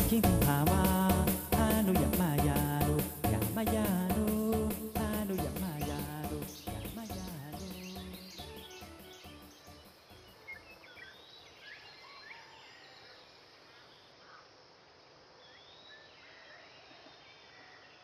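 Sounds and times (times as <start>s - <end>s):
steady low hiss: 0.0s - 12.0s, 12.8s - 16.3s.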